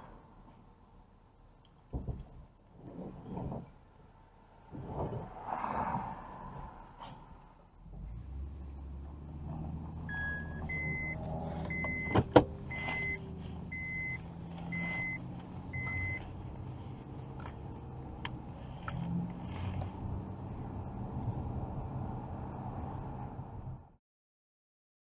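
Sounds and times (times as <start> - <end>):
truck engine running: 8.0 - 21.4
vehicle warning chime beeps: 10.1 - 16.2.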